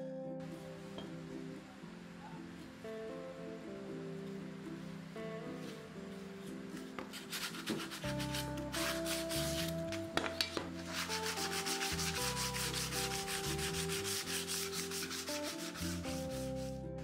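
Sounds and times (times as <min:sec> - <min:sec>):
sandpaper rubbing on metal: 0:07.0 - 0:10.1, 0:10.8 - 0:16.8.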